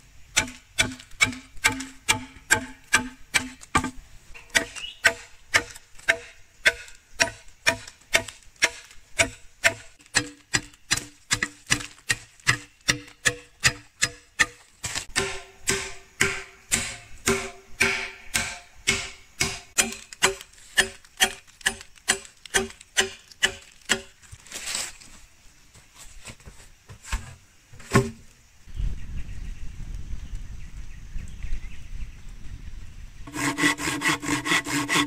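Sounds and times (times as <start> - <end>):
machete chopping bamboo: 0.4 - 24.2.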